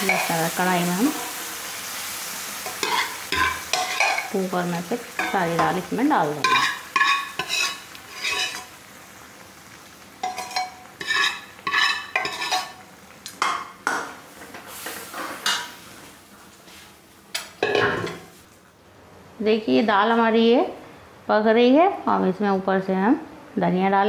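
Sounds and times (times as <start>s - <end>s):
ladle scraping metal pan: 6.4s - 8.7s, 10.2s - 12.8s.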